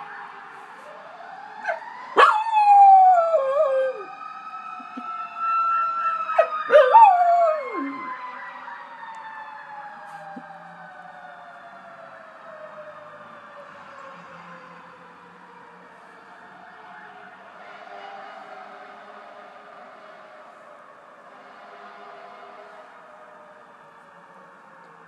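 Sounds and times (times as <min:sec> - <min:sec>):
fire truck siren wailing: 0:00.0 - 0:25.0
dog howling: 0:01.6 - 0:04.1, 0:06.4 - 0:08.1.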